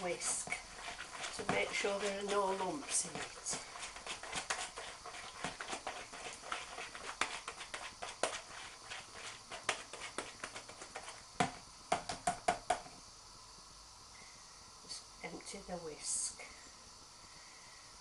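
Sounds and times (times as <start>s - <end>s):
whisk beating batter in glass bowl: 0.0s - 11.2s.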